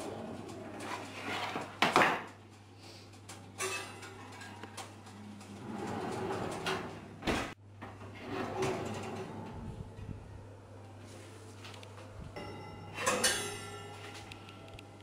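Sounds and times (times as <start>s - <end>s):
oven rack metal clatter: 3.3s - 7.6s, 12.9s - 14.0s
oven door shutting: 5.5s - 9.7s.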